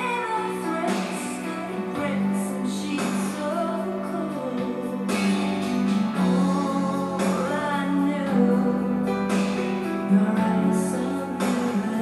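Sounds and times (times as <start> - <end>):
song with singing over instruments: 0.0 - 12.0.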